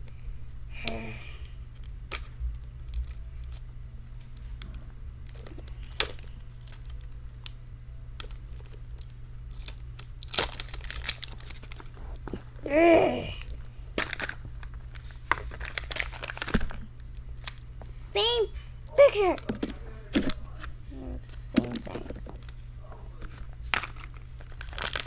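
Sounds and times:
steady low hum: 0:00.0 - 0:25.0
plastic wrap crinkling: 0:04.3 - 0:07.6, 0:08.2 - 0:12.6, 0:13.3 - 0:17.6, 0:19.0 - 0:25.0.

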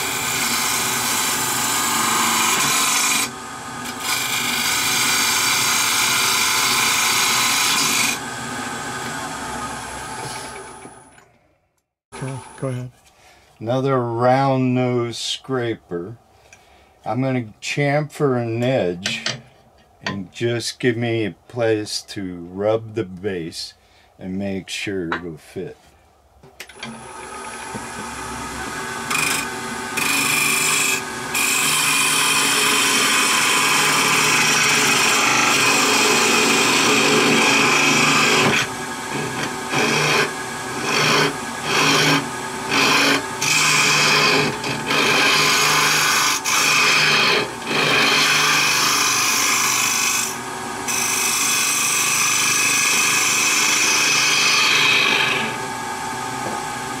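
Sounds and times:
lathe humming: 0:00.0 - 0:11.3, 0:26.7 - 0:57.0
scraper rasping on spinning wood: 0:29.1 - 0:51.7.

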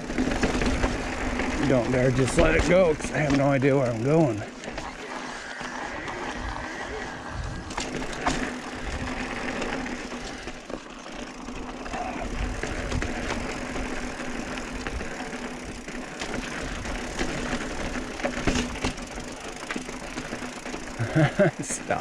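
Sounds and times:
bike clicks and rattles: 0:00.0 - 0:22.0
bike tyres rolling on rock: 0:00.0 - 0:22.0
steady low hum: 0:03.9 - 0:15.3.

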